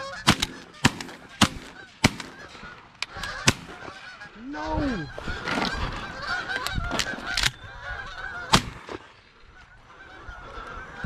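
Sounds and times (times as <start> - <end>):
geese honking: 0.0 - 11.0
shotgun shot: 0.3 - 2.4.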